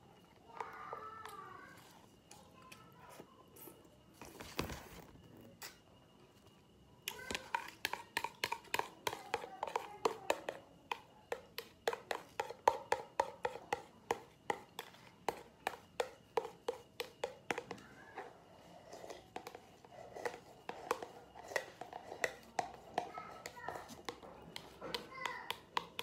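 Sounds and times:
spoon clicking on plastic bowl: 0:20.2 - 0:26.0.

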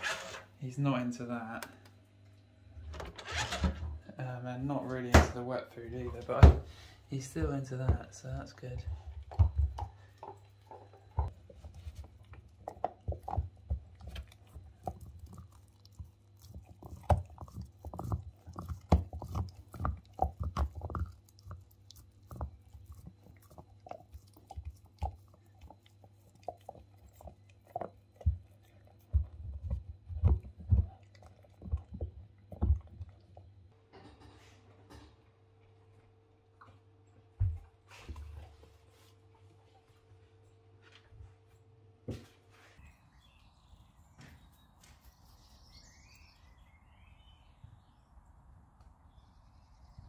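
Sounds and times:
dog gnawing and crunching chew: 0:07.1 - 0:33.7.

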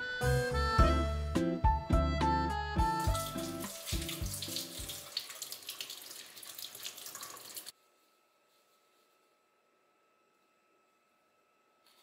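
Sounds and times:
soft background music: 0:00.0 - 0:05.1
tap water splashing into sink: 0:03.1 - 0:07.7.

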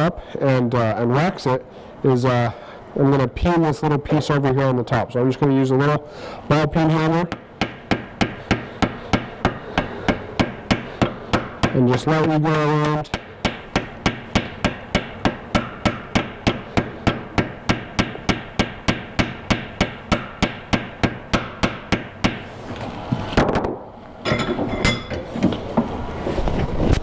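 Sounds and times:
bench vise clanking and scraping: 0:24.2 - 0:25.9.

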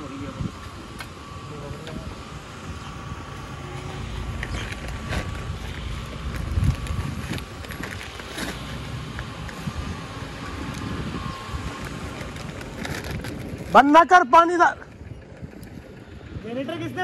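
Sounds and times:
steady engine hum: 0:00.0 - 0:17.0
paper sack crackling: 0:04.0 - 0:08.9, 0:11.6 - 0:14.0.

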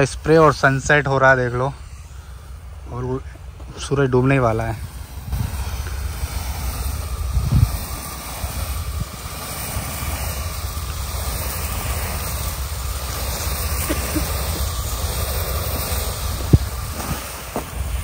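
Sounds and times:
small engine running: 0:00.0 - 0:18.0
wind buffeting microphone: 0:04.7 - 0:13.6, 0:14.7 - 0:18.0.

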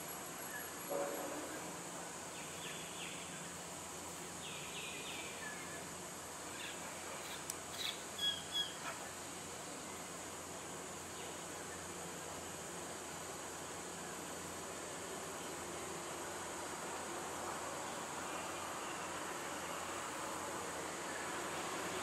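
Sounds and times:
bird calls: 0:06.6 - 0:09.0.

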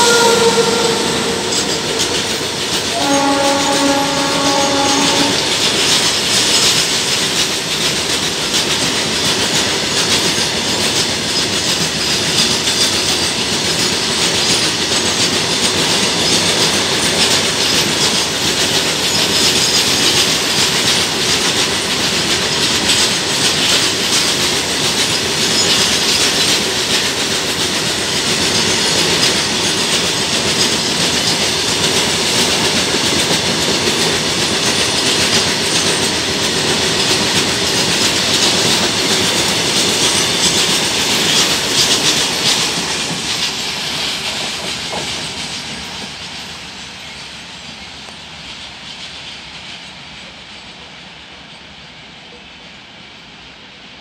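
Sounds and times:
train horn: 0:00.0 - 0:06.0
train wheels clattering on rails: 0:00.0 - 0:53.3.

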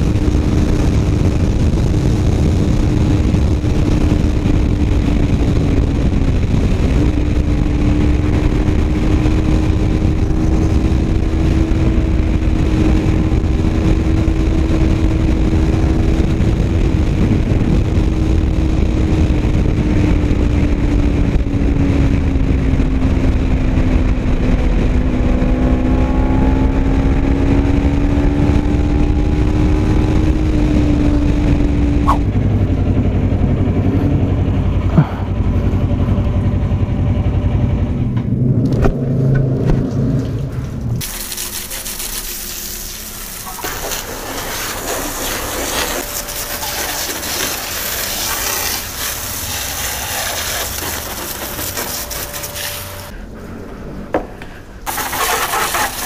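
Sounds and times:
wind rush on microphone: 0:00.0 - 0:41.0
motorcycle engine cruising: 0:00.0 - 0:42.0, 0:42.8 - 0:56.0.

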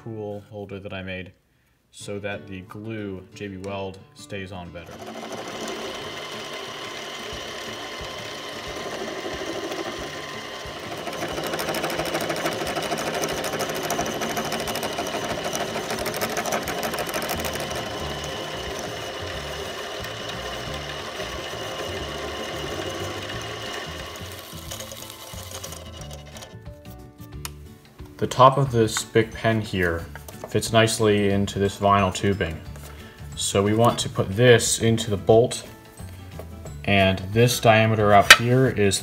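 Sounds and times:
lathe running with mechanical whir: 0:04.9 - 0:26.6.

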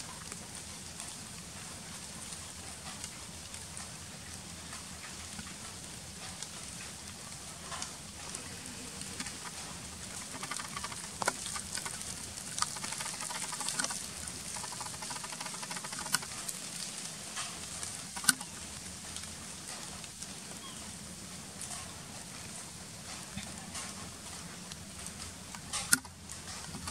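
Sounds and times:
background hiss: 0:00.0 - 0:26.9
faint crackling: 0:06.2 - 0:19.3
sharp clicks: 0:09.0 - 0:16.3, 0:18.1 - 0:18.5.

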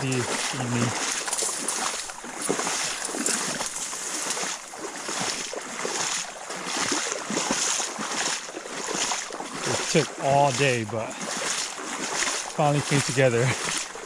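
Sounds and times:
footsteps through dry grass: 0:00.0 - 0:14.0.

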